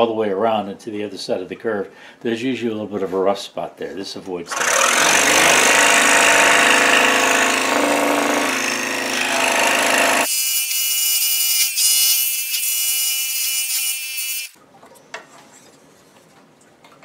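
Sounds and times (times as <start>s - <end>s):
scroll saw cutting wood: 4.5s - 14.6s.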